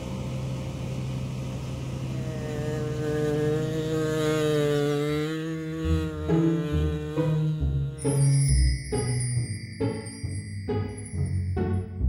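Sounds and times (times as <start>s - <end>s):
combine harvester engine running: 0.0s - 11.8s
higher droning note: 0.0s - 12.0s.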